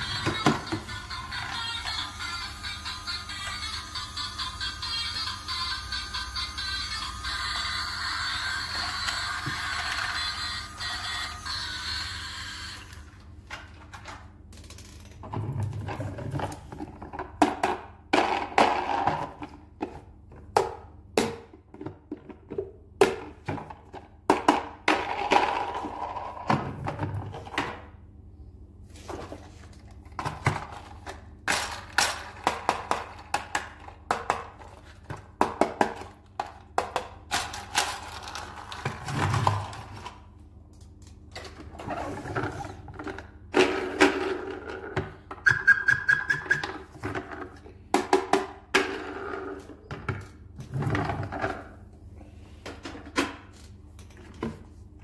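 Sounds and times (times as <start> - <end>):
plastic toys clattering on table: 35.6 - 40.2.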